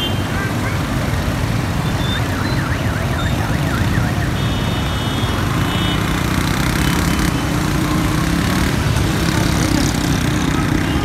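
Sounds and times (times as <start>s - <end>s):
car engines running: 5.4s - 11.0s.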